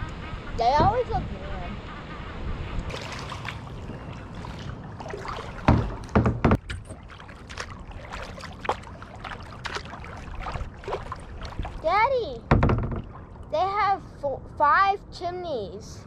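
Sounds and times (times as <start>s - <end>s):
steady low rumble: 0.0s - 16.0s
paddle splashing in water: 2.9s - 13.6s.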